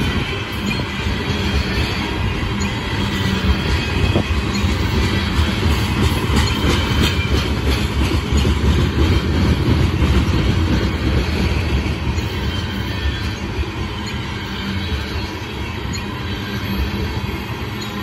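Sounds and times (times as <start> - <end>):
train wheels rumbling on rail: 0.0 - 18.0
wheels clicking over rail joints: 1.6 - 15.2.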